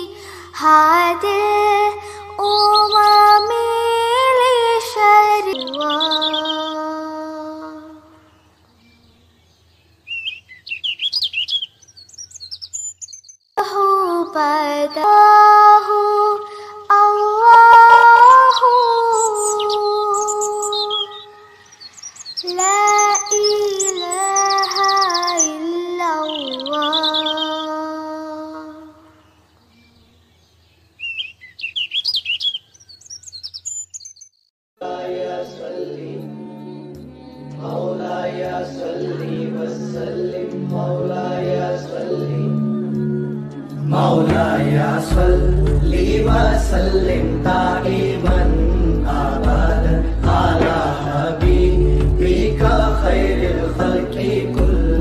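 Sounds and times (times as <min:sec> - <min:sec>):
birds chirping: 0:02.4 - 0:07.2, 0:07.8 - 0:13.6, 0:16.3 - 0:34.5
background music: 0:34.8 - 0:55.0.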